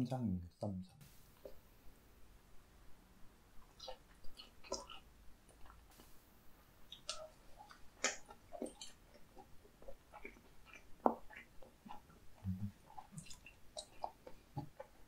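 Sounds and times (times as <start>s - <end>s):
wet chewing mouth clicks: 3.6s - 6.1s, 6.9s - 15.0s.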